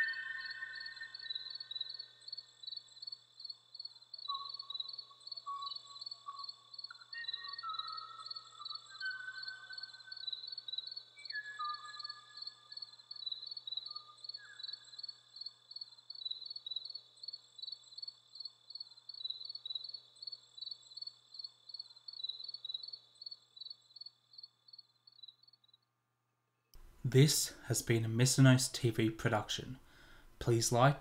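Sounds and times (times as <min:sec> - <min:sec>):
faint bird whistles: 0:00.0 - 0:02.0, 0:05.5 - 0:12.9, 0:13.8 - 0:14.9
insects chirping: 0:00.0 - 0:25.9.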